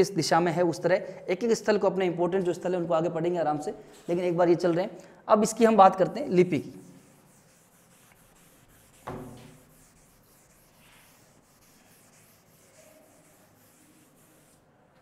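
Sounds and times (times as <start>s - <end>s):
duster rubbing chalkboard: 6.4s - 14.7s
sharp knock: 9.0s - 9.6s.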